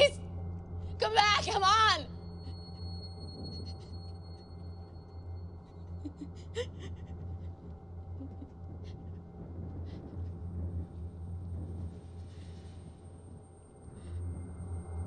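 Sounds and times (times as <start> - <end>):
low steady hum: 0.0 - 15.0
woman crying quietly: 6.0 - 7.6.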